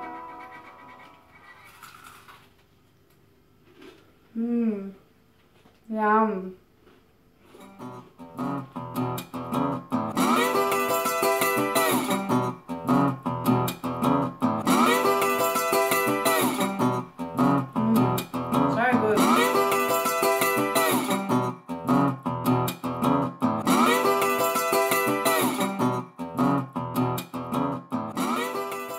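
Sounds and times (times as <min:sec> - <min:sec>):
guitar background music: 0:00.0 - 0:01.3, 0:07.6 - 0:28.9.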